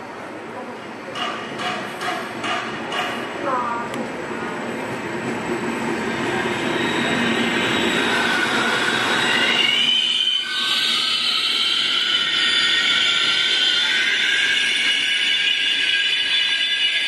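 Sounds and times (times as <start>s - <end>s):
rumble of train coaches: 0.0s - 17.0s
train wheels squealing: 5.4s - 17.0s.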